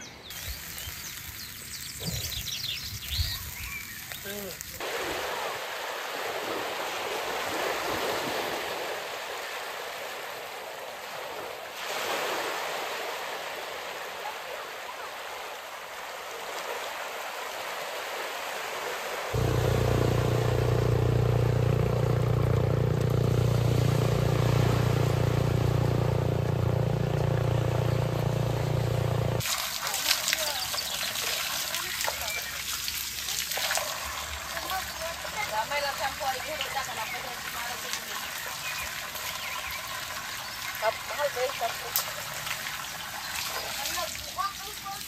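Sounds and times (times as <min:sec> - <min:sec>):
loud low hum: 0:19.4 - 0:29.4
steady rain falling: 0:19.4 - 0:33.4.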